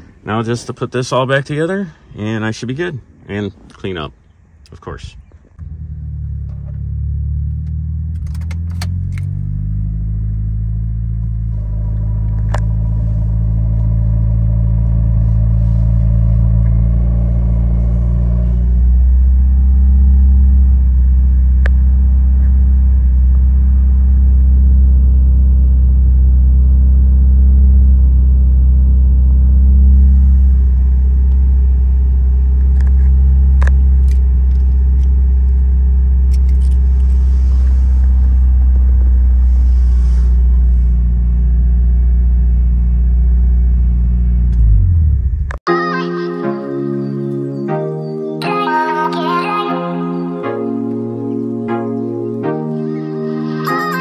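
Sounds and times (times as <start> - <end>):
car engine starting and idling: 4.7 - 46.0.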